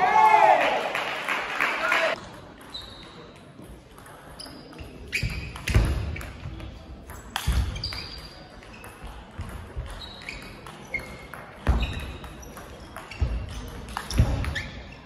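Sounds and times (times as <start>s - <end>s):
shoes squeaking on floor: 2.6s - 3.5s, 4.4s - 15.0s.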